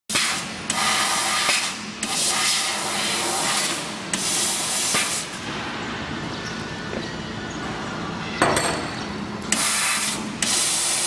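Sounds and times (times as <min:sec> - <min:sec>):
laser cutter gas jet hissing: 0:09.5 - 0:11.0.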